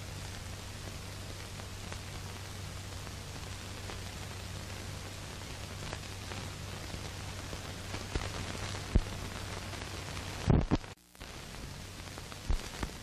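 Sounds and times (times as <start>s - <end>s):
film soundtrack hiss and crackle: 0.0s - 13.0s
sharp pops: 5.9s - 11.3s.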